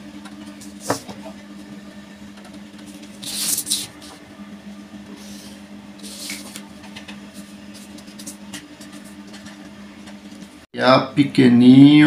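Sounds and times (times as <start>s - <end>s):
marker scratching on paper: 3.2s - 4.2s.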